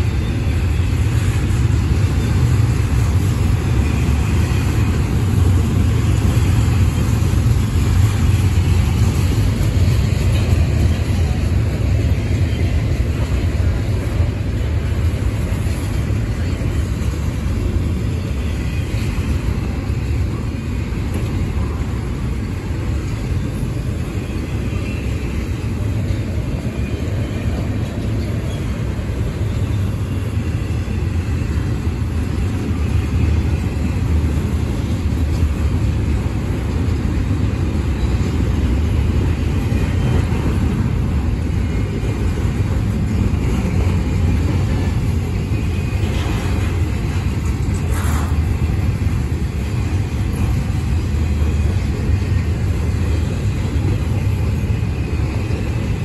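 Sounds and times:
steel wheels rumbling on rail: 0:00.0 - 0:56.0.

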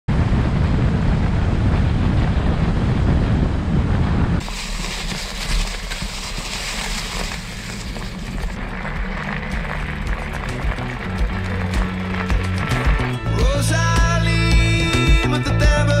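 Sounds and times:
wind buffeting microphone: 0:00.1 - 0:13.1
bike rolling on leafy trail: 0:04.4 - 0:12.6.

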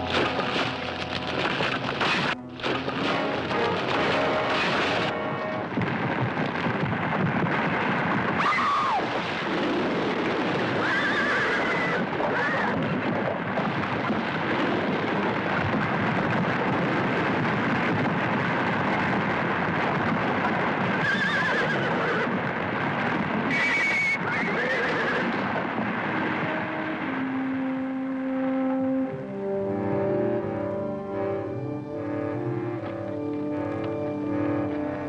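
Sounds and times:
continuous noisy rumble: 0:00.0 - 0:35.0
horses whinnying: 0:10.7 - 0:12.9, 0:21.0 - 0:22.4, 0:23.6 - 0:25.5.

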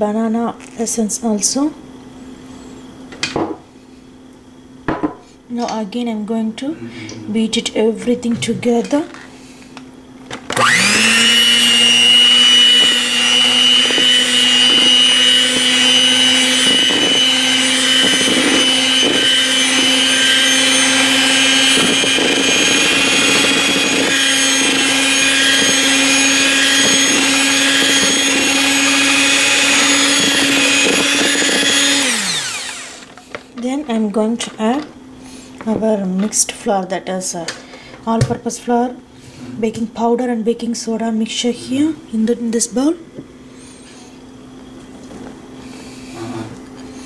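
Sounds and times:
electric hand mixer running: 0:10.3 - 0:33.5.

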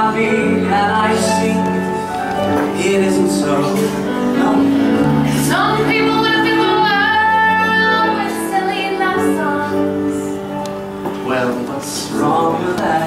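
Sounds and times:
instrumental accompaniment: 0:00.0 - 0:13.0
woman singing with vibrato: 0:05.0 - 0:10.5.

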